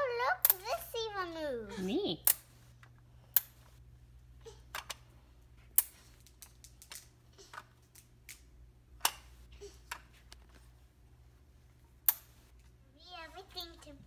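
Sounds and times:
plastic pieces clicking: 5.8 - 9.2.

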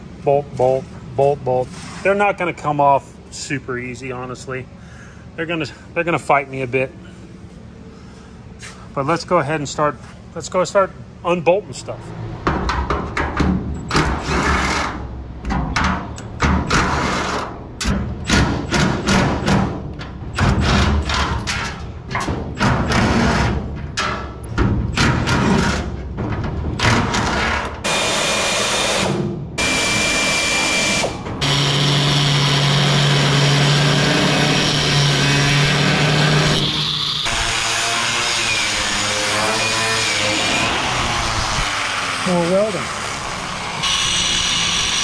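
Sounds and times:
cordless power tool on bolt: 27.9 - 45.0
angle grinder cutting metal: 29.6 - 45.0.

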